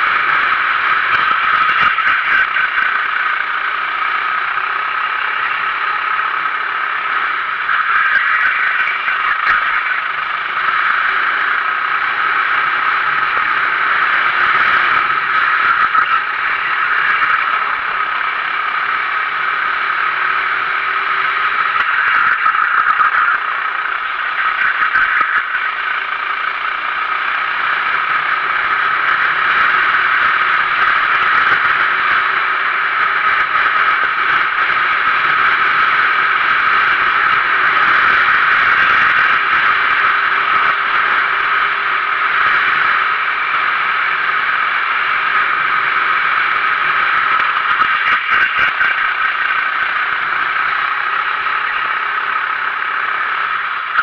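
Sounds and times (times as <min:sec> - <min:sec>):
kart engine running hard: 0:00.0 - 0:54.0
steady rushing noise: 0:00.0 - 0:54.0.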